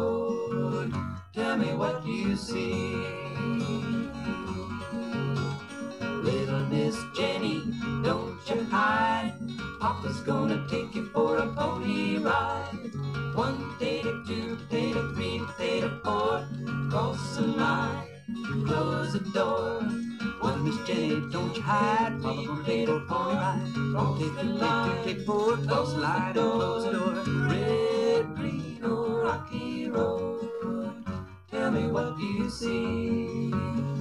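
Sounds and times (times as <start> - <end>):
group singing: 0.0 - 34.0
strummed acoustic guitars: 0.0 - 34.0.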